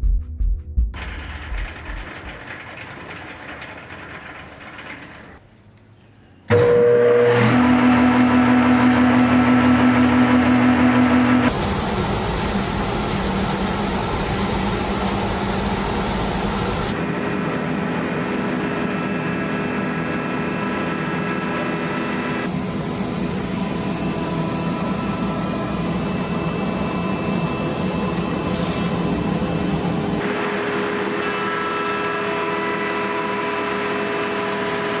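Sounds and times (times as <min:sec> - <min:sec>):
dust collector running: 0:01.0 - 0:05.4, 0:06.5 - 0:35.0
wood planer running: 0:06.5 - 0:35.0.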